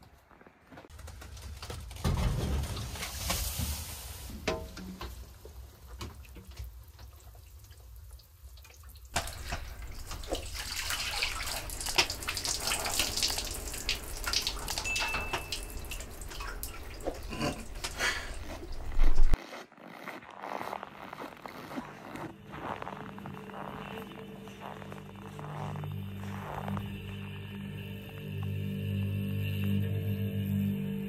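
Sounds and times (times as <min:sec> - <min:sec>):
water splashing on wooden bench: 0:08.6 - 0:19.4.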